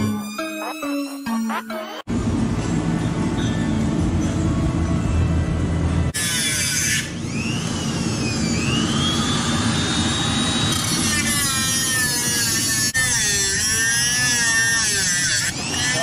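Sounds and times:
angle grinder cutting metal pipe: 6.1 - 16.0.

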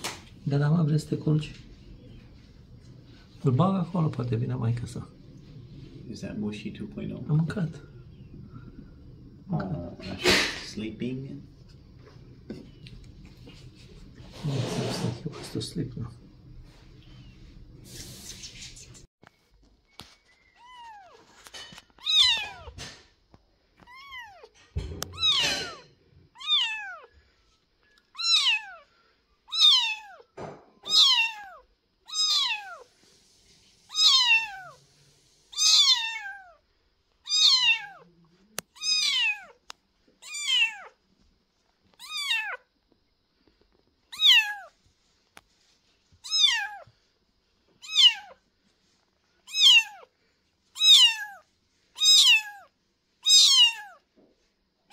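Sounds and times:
kitten meowing: 22.0 - 22.7, 23.8 - 24.5, 25.1 - 25.8, 26.4 - 27.1, 28.1 - 28.8, 29.5 - 30.2, 30.8 - 32.9, 33.9 - 34.8, 35.5 - 36.6, 37.2 - 38.1, 38.7 - 39.6, 40.2 - 41.0, 42.0 - 42.6, 44.1 - 44.7, 46.2 - 46.8, 47.8 - 48.4, 49.5 - 50.1, 50.8 - 51.4, 52.0 - 54.0.

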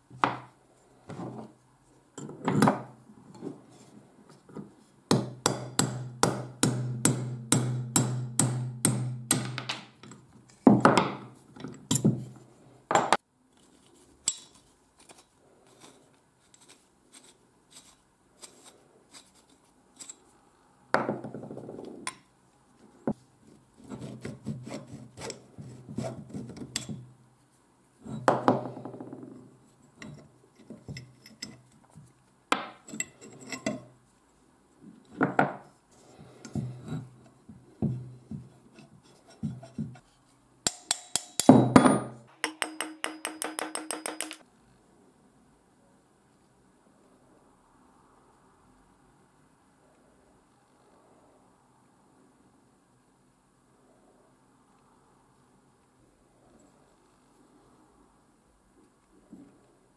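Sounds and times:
hammer tapping steel punch: 5.1 - 10.2, 40.7 - 44.4
metal parts rubbing and clinking: 42.6 - 44.4.

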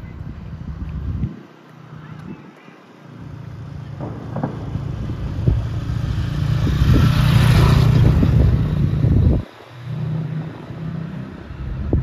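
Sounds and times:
tyre and road hiss: 0.0 - 12.0
vehicle engine running: 3.1 - 12.0.

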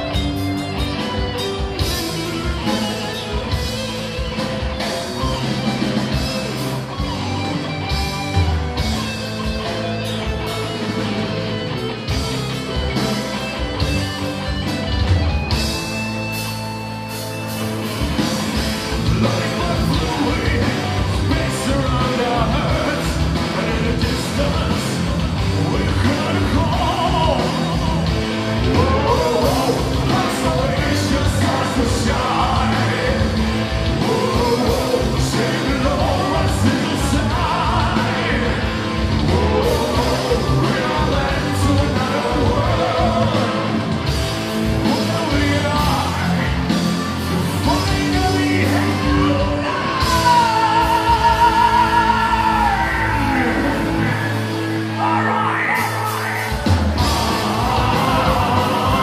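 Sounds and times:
metal band playing live: 0.0 - 59.0
lead singer singing: 18.2 - 59.0.

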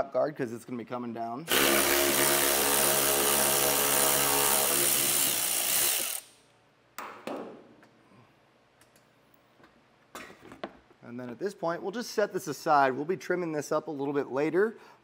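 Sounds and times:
cordless power ratchet running: 1.5 - 6.3.

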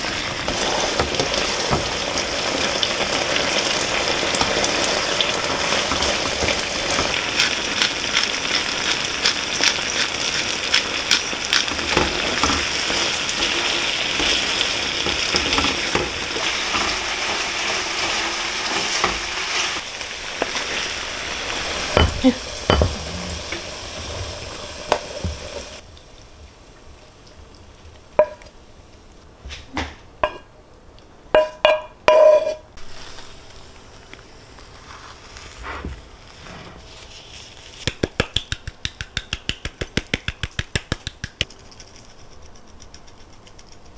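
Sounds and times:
food frying in a pan: 0.0 - 29.2, 31.5 - 41.4
kitchenware clinking: 21.9 - 23.6, 31.4 - 32.7.

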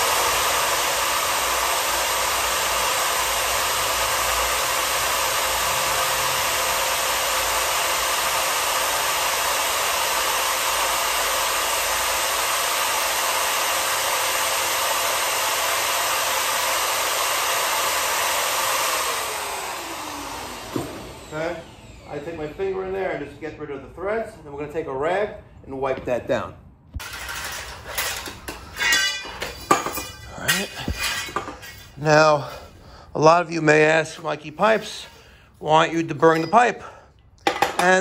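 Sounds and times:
power drive motor whine: 0.0 - 23.2.

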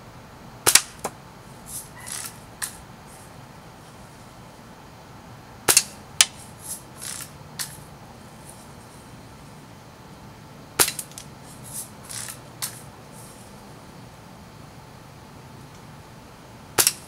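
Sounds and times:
bb gun shot snap: 16.8 - 17.0.

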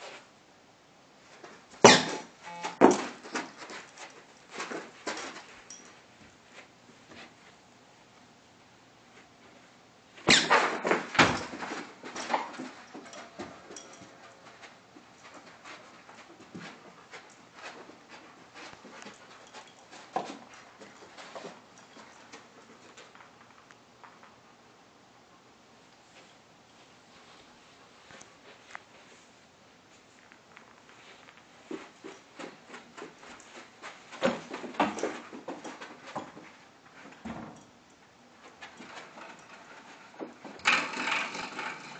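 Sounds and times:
dog paws scampering on carpet: 2.8 - 8.2, 9.0 - 24.6, 25.9 - 40.7.

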